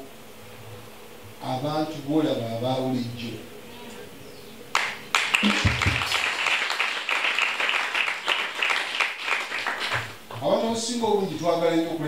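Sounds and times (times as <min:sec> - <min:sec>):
congregation applauding: 0:04.7 - 0:10.6.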